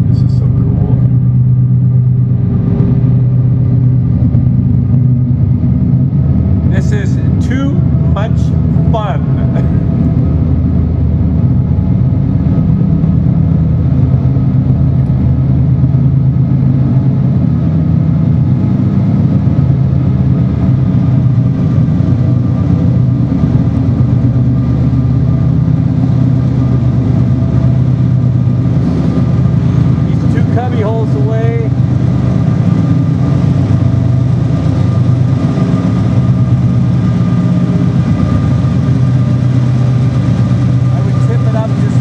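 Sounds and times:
diesel locomotive engine droning: 0:00.0 - 0:42.0.

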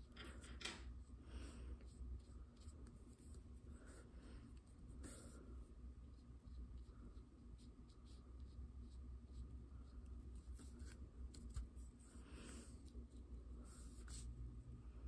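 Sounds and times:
low room hum: 0:00.0 - 0:15.0
paintbrush scratching on surface: 0:04.7 - 0:14.4.

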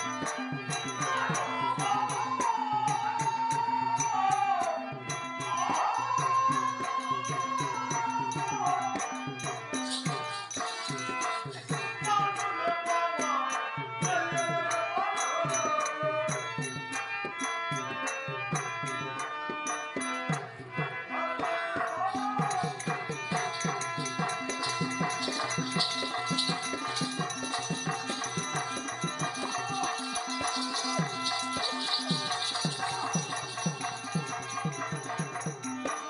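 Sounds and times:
hand drums: 0:00.0 - 0:14.8, 0:15.4 - 0:36.0
metal jingles: 0:08.6 - 0:12.1, 0:21.8 - 0:36.0
wavering melody line: 0:09.5 - 0:11.7, 0:22.6 - 0:35.0.

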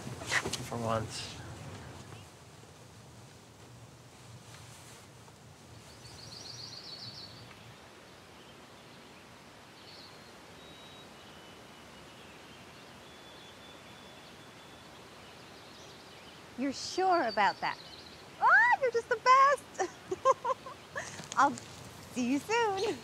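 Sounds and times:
steady background hiss: 0:00.0 - 0:23.0
faint high bird chirps: 0:09.8 - 0:19.0.

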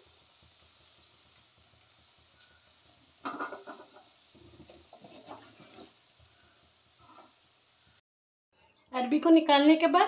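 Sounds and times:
clatter onto steel plate: 0:03.2 - 0:05.9
spatula scraping a metal pan: 0:03.2 - 0:06.0.

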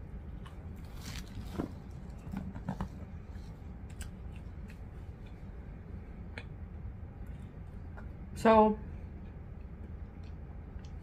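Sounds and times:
chewing food: 0:03.4 - 0:05.6, 0:09.1 - 0:11.0.

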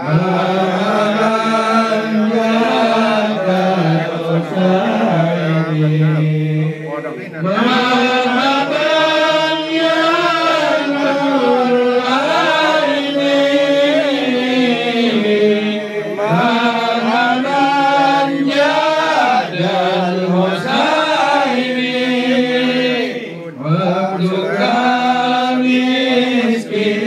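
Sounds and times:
person chanting: 0:00.0 - 0:27.0.

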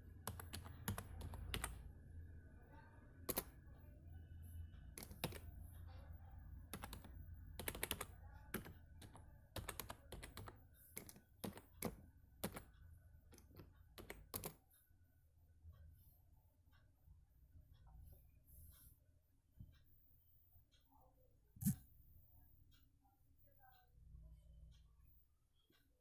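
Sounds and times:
faint low hum: 0:00.0 - 0:26.0
touchscreen keyboard typing clicks: 0:00.2 - 0:01.8, 0:03.2 - 0:03.6, 0:04.9 - 0:05.6, 0:06.6 - 0:12.7, 0:13.3 - 0:14.6.

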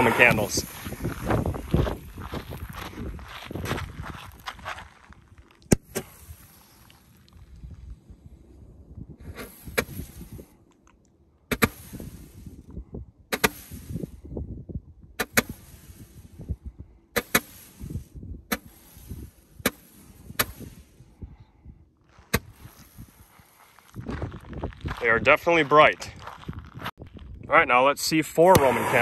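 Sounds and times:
roman candle pops and hiss: 0:11.5 - 0:12.4, 0:13.3 - 0:14.1, 0:15.2 - 0:16.3, 0:17.2 - 0:20.8, 0:28.5 - 0:29.0.

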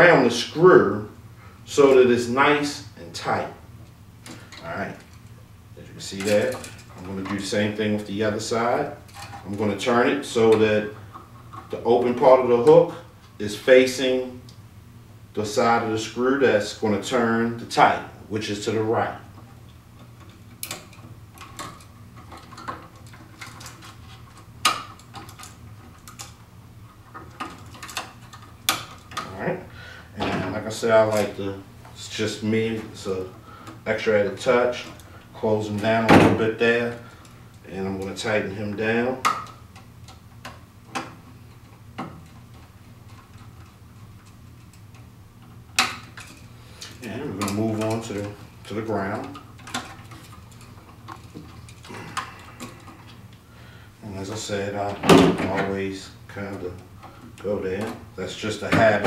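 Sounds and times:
clicks of handling wires: 0:06.2 - 0:08.1, 0:09.0 - 0:09.8, 0:19.3 - 0:29.4, 0:32.8 - 0:53.4.

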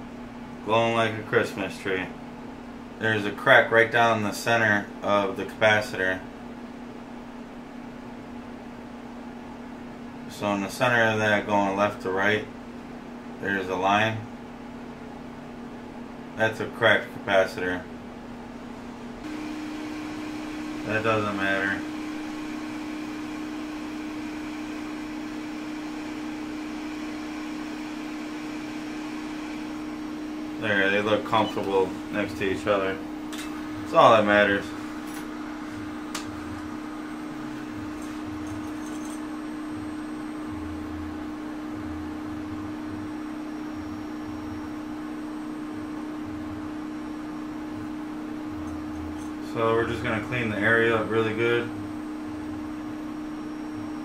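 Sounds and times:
bench fan running: 0:00.0 - 0:54.0
electric blower humming: 0:19.2 - 0:47.0.

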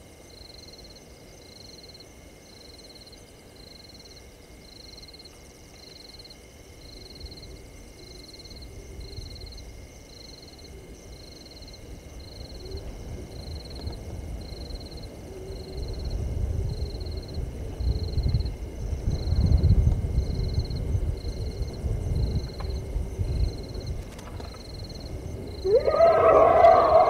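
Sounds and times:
lower call notes: 0:25.6 - 0:27.0.

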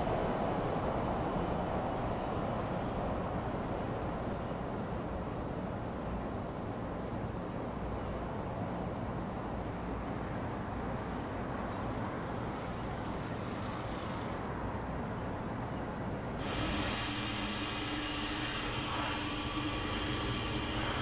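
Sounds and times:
shower water spraying: 0:16.4 - 0:21.0.

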